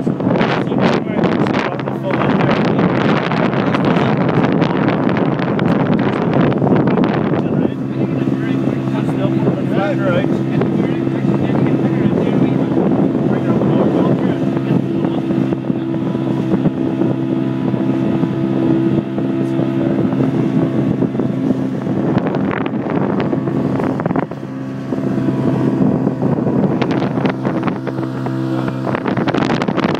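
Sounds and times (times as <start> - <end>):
motorboat engine humming: 0.0 - 29.9
wind on microphone: 0.0 - 29.9.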